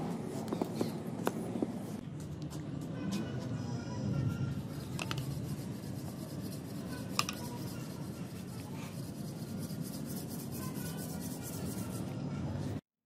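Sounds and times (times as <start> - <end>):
hands rubbing and scraping sand: 4.6 - 12.0.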